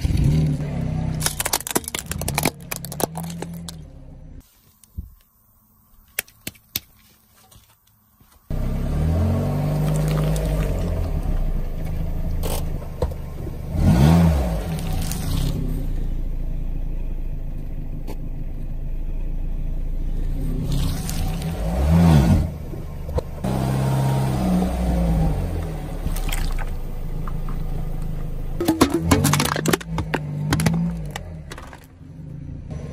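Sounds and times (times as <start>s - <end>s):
tyre crushing plastic box: 1.2s - 3.8s, 28.6s - 32.0s
car engine running: 8.5s - 32.9s.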